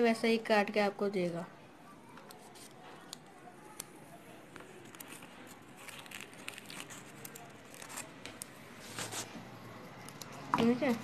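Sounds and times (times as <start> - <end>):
crackles: 2.0 - 9.3
polystyrene foam crinkling: 4.7 - 8.2.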